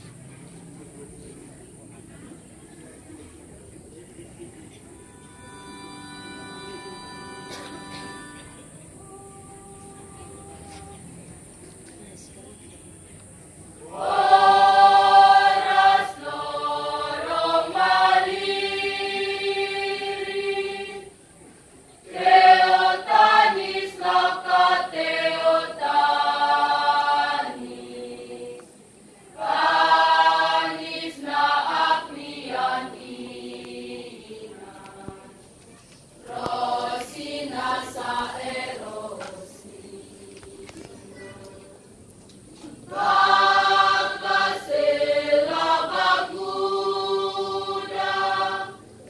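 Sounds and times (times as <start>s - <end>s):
children's choir singing: 13.8s - 21.2s, 22.0s - 35.6s, 36.2s - 42.0s, 42.7s - 49.0s.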